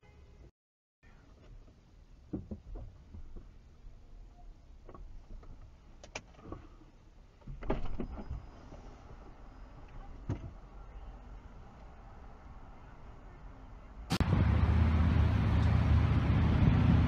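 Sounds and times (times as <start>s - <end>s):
car engine rumble inside cabin: 14.1s - 17.0s.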